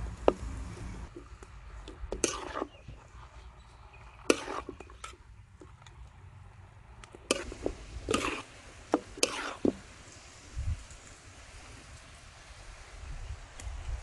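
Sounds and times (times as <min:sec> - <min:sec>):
metal spatula scraping wok: 0:02.0 - 0:05.2, 0:07.2 - 0:09.8.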